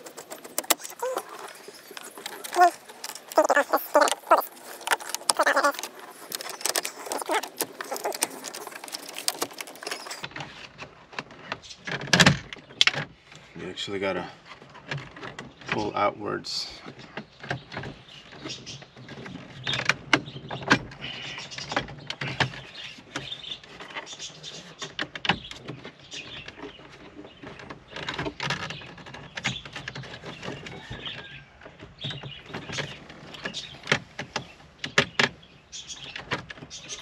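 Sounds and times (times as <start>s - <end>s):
plastic panel clicking and creaking: 0.0s - 13.4s, 16.9s - 37.0s.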